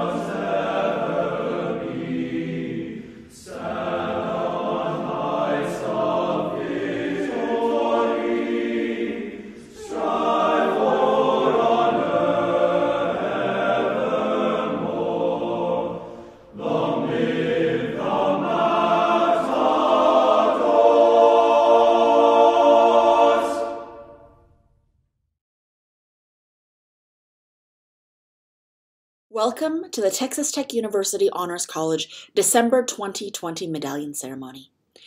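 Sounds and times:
choir singing sustained chords: 0:00.0 - 0:24.6.

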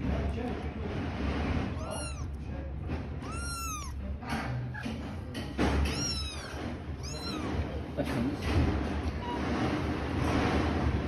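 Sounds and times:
kittens mewing: 0:01.7 - 0:02.4, 0:03.1 - 0:05.0, 0:05.8 - 0:07.6.

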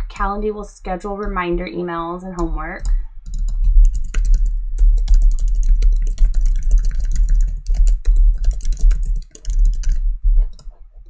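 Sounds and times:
steady low hum: 0:00.0 - 0:11.0
fast keyboard typing: 0:02.3 - 0:10.7.

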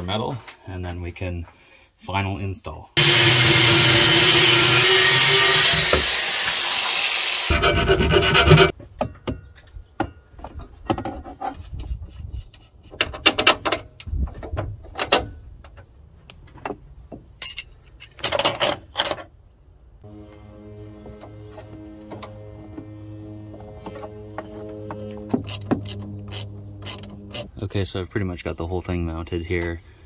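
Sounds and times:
angle grinder cutting metal: 0:03.0 - 0:08.7.

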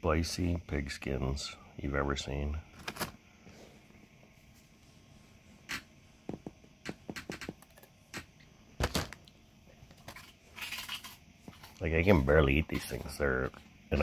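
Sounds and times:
dog crunching pork rind: 0:10.0 - 0:11.8
foil bag crinkling: 0:10.0 - 0:12.2.

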